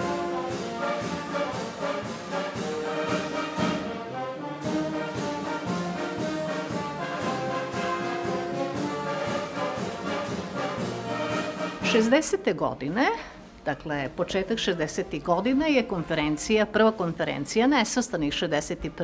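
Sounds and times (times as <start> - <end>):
orchestral music with brass: 0.0 - 12.4.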